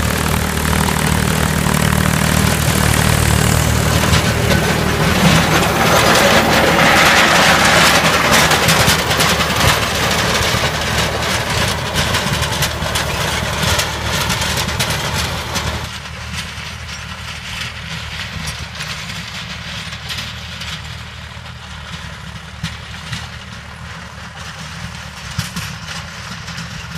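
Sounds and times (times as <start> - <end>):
rotavator churning dry soil: 0.0 - 21.0
tractor diesel engine under load: 0.0 - 26.9.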